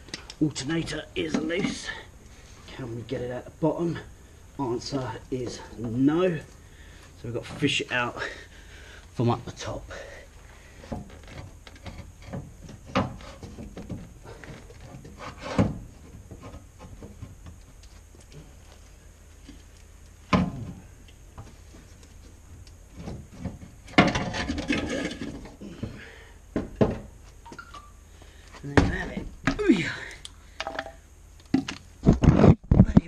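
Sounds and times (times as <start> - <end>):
metal knocks and scrapes: 23.0 - 25.5.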